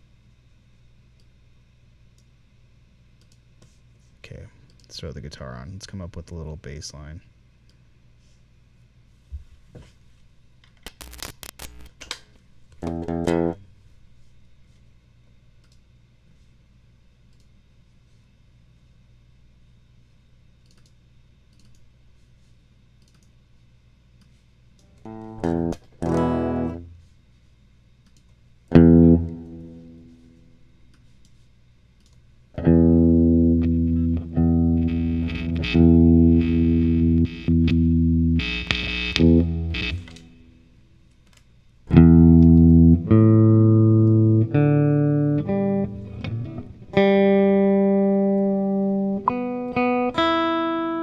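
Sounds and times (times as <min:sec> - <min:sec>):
faint low hum: 0:00.0 - 0:51.0
electric guitar chords and notes: 0:12.8 - 0:13.6, 0:25.0 - 0:26.9, 0:28.7 - 0:30.2, 0:32.6 - 0:40.4, 0:41.9 - 0:51.0.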